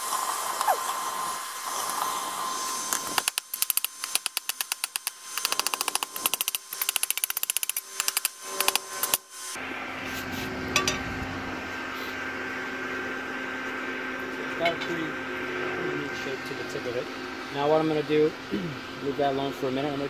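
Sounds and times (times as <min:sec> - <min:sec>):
steady hum: 0:00.0 - 0:20.0
hammer ringing on anvil: 0:10.7 - 0:11.2.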